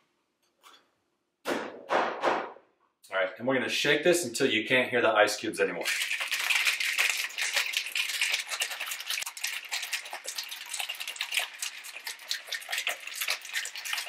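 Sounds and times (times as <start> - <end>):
ice rattling in cocktail shaker: 5.8 - 14.0.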